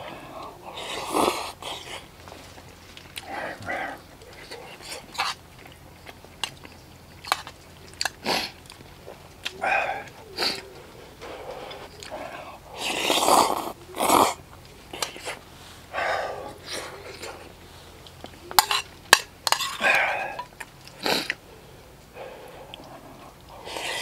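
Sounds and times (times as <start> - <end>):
slurping noodles: 0.0 - 2.1, 9.6 - 17.5, 22.3 - 24.0
wet chewing: 0.0 - 24.0.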